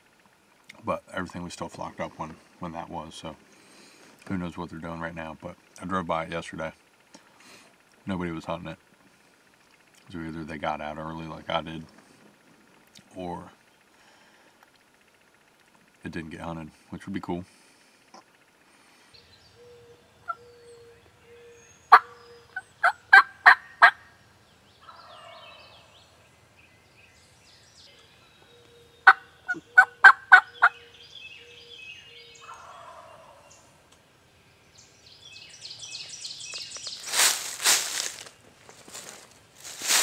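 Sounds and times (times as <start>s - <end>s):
distant turkey gobble: 18.2s - 24.2s, 24.8s - 26.0s, 28.4s - 33.8s
sharp turkey yelps: 20.3s - 20.5s, 21.9s - 24.1s, 24.8s - 25.9s, 29.0s - 30.8s, 32.4s - 33.4s
rustling: 36.6s - 40.0s.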